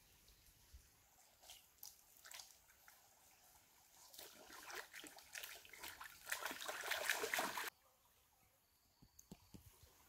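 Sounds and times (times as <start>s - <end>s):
water splashing and trickling: 0.0s - 7.8s.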